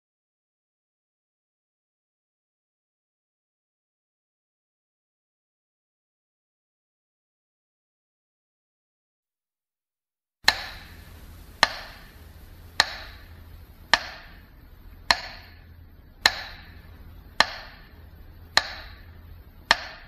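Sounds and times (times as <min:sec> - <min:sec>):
faint low hum: 0:10.4 - 0:20.0
sharp ringing ticks: 0:10.5 - 0:20.0.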